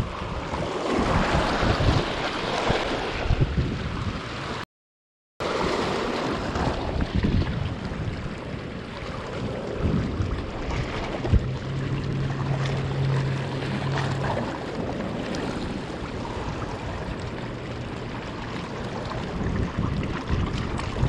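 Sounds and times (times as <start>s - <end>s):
wind buffeting microphone: 0.0s - 4.6s, 5.5s - 21.0s
small waves washing over rocks: 5.4s - 21.0s.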